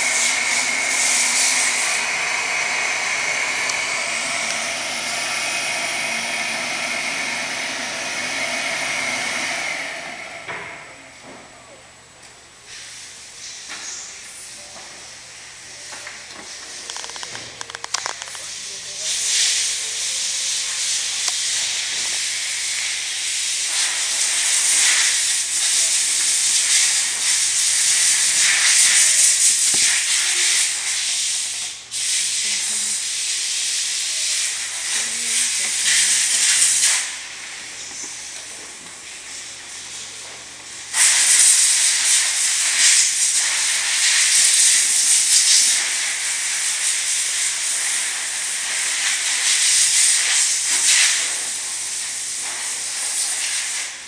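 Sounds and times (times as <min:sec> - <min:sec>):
laser printer whirring: 0:00.0 - 0:11.2.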